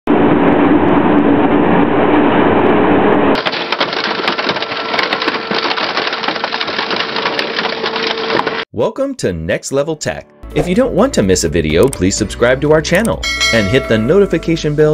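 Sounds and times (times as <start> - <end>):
shredder grinding and crunching metal: 3.4 - 8.6.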